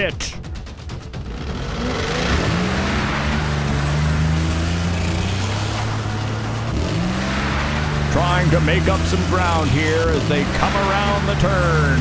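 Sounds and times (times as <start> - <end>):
engine drone revving: 0.5 - 12.0
constant rushing noise: 0.6 - 12.0.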